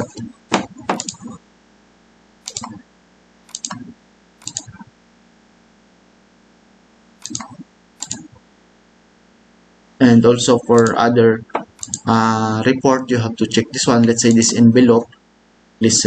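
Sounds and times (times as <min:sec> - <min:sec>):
keyboard and mouse clicks: 0:00.0 - 0:01.4, 0:02.4 - 0:02.8, 0:03.5 - 0:04.9, 0:07.2 - 0:08.4, 0:10.7 - 0:12.1.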